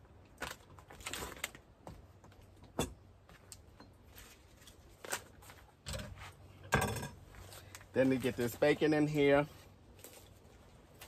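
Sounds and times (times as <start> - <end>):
plastic packet being handled: 7.4 - 11.0.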